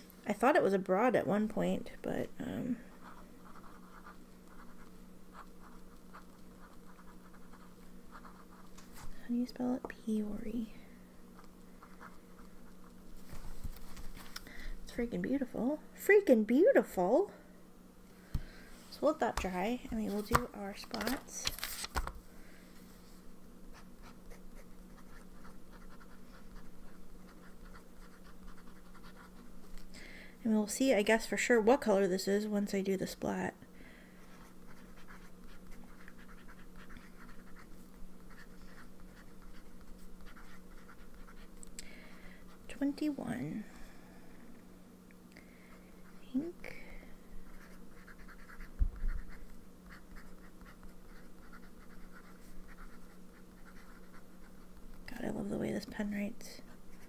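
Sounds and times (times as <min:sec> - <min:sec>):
faint steady hum: 0:00.0 - 0:57.0
pen nib scratching on paper: 0:03.0 - 0:08.7, 0:23.7 - 0:29.5, 0:34.2 - 0:41.6, 0:47.5 - 0:55.0.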